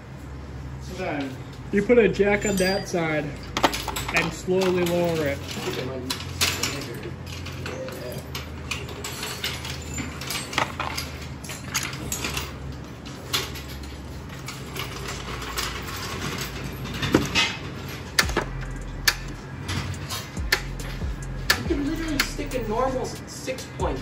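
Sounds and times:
steady low hum: 0.0 - 24.0
tools and car parts knocking: 3.5 - 7.5, 8.4 - 12.6, 13.3 - 22.7.

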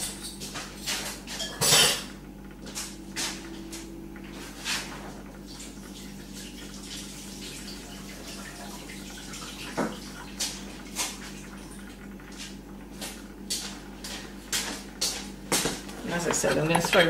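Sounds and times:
tap water running into sink: 5.6 - 11.2
footsteps on tiled floor: 12.4 - 17.0.

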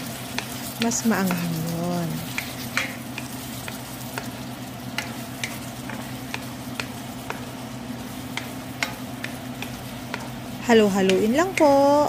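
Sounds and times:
food sizzling in pan: 0.0 - 12.0
spoon knocking against pan: 2.3 - 4.3, 4.9 - 7.5, 8.3 - 10.4.

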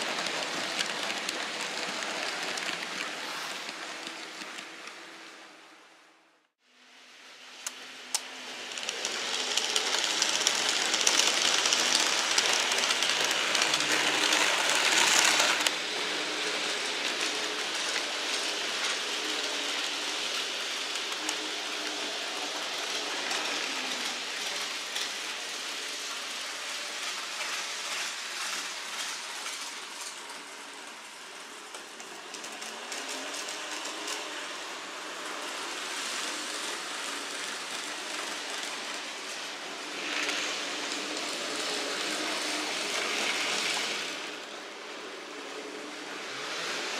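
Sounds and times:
model trains whirring and rattling: 0.0 - 46.9.

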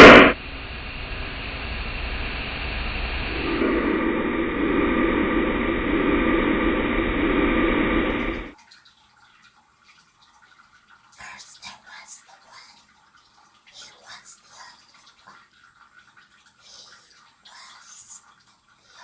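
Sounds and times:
steady rushing noise: 0.0 - 8.6.

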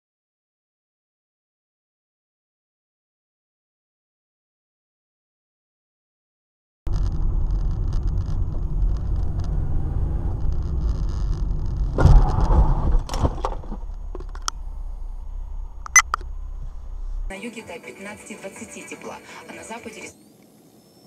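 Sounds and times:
car interior engine and road rumble: 6.9 - 17.3
sharp clicks and knocks: 10.4 - 17.3.

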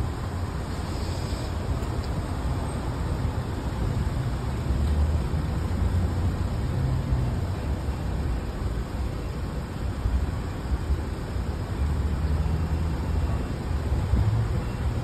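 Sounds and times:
fuel hissing through hose: 0.6 - 1.8.

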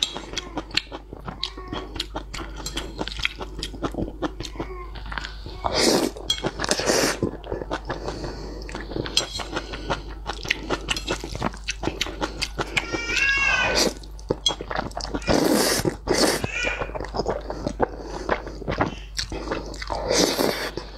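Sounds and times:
person slurping noodles: 5.6 - 12.7, 13.5 - 14.1, 14.7 - 20.9.

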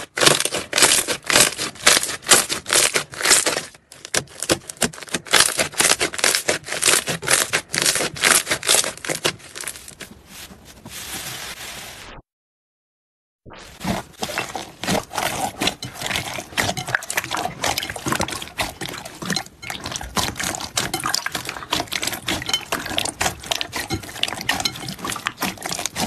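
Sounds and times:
slime squishing and crackling: 0.0 - 10.2, 13.7 - 26.0
soft slime rustle: 7.8 - 12.1.

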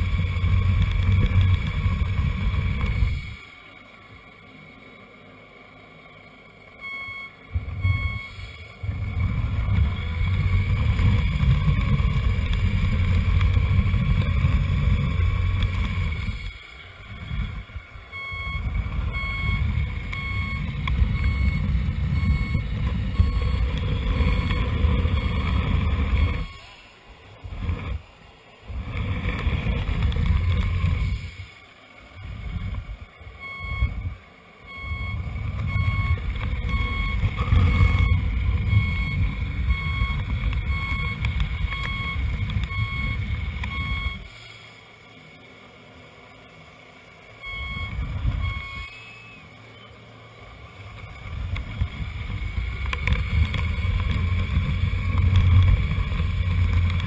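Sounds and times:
reversing beeper: 6.6 - 26.9, 33.3 - 44.4, 47.3 - 50.3
low rumble: 6.8 - 26.6, 32.2 - 44.2.

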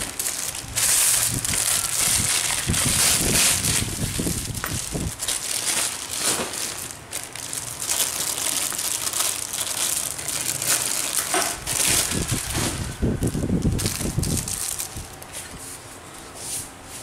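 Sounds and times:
plastic wrapping crinkling: 0.0 - 15.8.

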